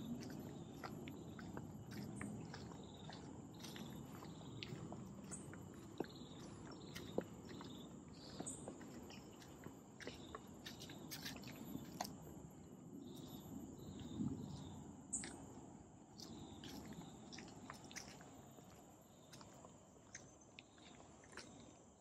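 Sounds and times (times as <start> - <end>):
bird chirps: 0.0 - 12.0
footsteps on dry leaves: 0.0 - 12.1.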